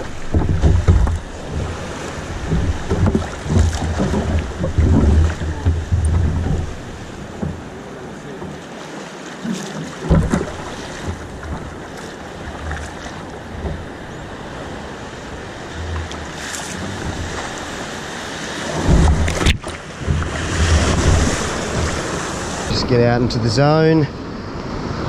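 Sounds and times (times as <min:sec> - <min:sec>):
wind buffeting microphone: 0:00.0 - 0:08.6, 0:09.9 - 0:25.0
ocean surf washing: 0:00.0 - 0:25.0.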